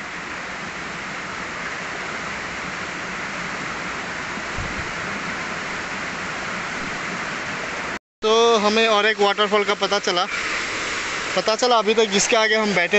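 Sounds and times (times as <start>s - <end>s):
waterfall and stream rushing: 0.0s - 12.9s
low thump: 4.5s - 4.9s.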